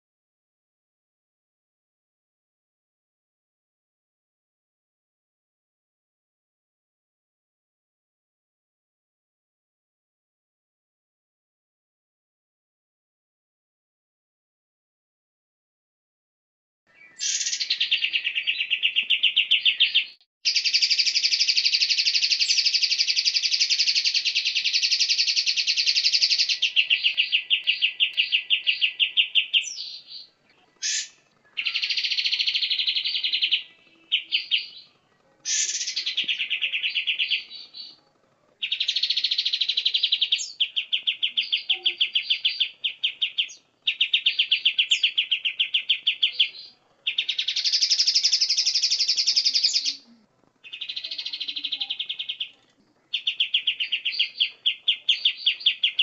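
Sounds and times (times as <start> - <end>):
songbird trilling: 16.9 - 38.0, 38.6 - 56.0.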